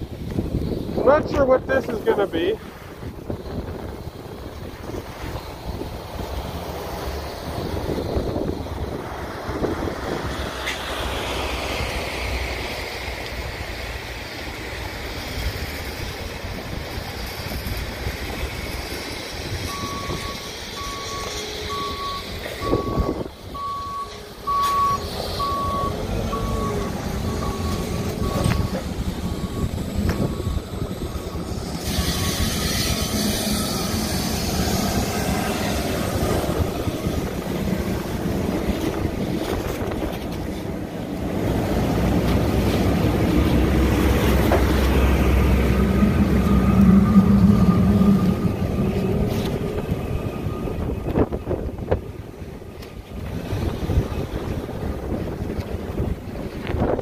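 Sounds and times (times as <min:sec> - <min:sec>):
low engine rumble: 0:00.0 - 0:57.0
outdoor noise: 0:00.0 - 0:57.0
reversing alarm beeping: 0:19.6 - 0:36.6, 0:44.5 - 0:51.7.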